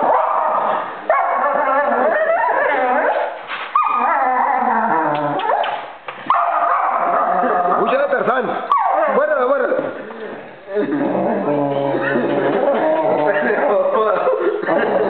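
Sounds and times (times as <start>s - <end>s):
dog barking and howling: 0.0s - 7.9s, 8.7s - 9.4s.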